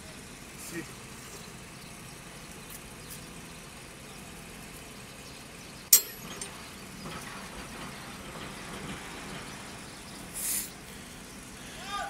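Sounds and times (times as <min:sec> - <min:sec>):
low engine hum: 0:00.0 - 0:12.0
sharp metallic clank: 0:05.9 - 0:06.7.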